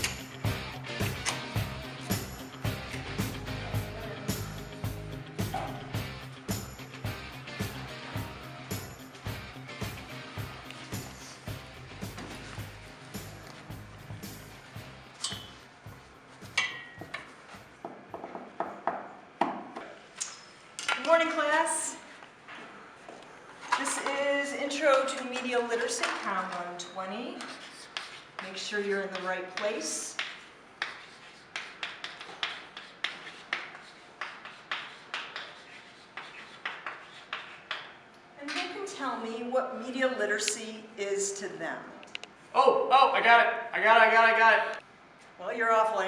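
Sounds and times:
chalk writing on blackboard: 0:27.3 - 0:38.0.

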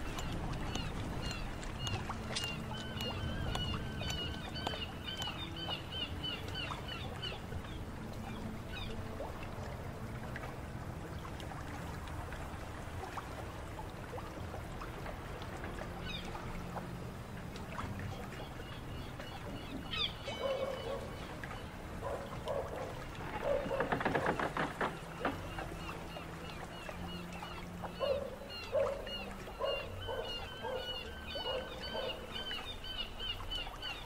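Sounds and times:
low steady rumble: 0:00.0 - 0:23.6
water lapping and trickling: 0:00.0 - 0:34.0
small clicks and creaks: 0:23.1 - 0:26.2
bird chirping: 0:28.0 - 0:34.0.

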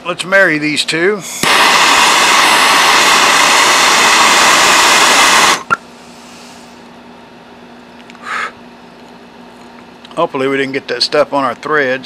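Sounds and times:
gas torch hissing: 0:01.2 - 0:06.8.

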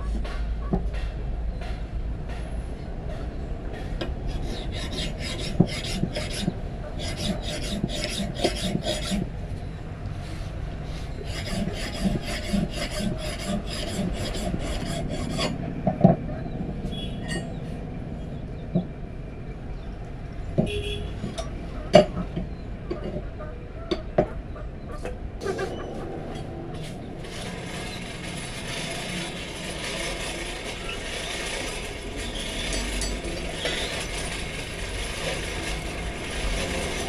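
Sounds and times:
file rasping on steel blade: 0:04.3 - 0:09.3, 0:11.1 - 0:15.6.

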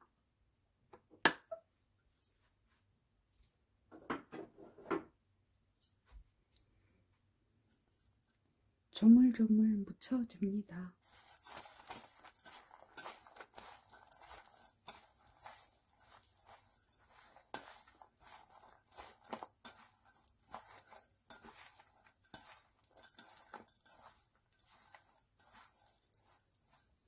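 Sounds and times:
rustling of wet greens: 0:11.0 - 0:27.0.

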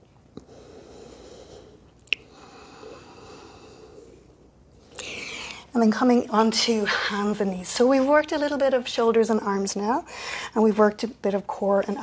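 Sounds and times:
person breathing in slowly: 0:00.4 - 0:05.7.

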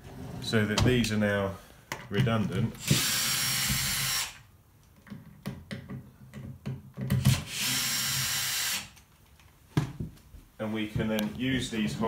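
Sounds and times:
cordless drill driving a screw: 0:02.8 - 0:04.4, 0:07.2 - 0:09.0.

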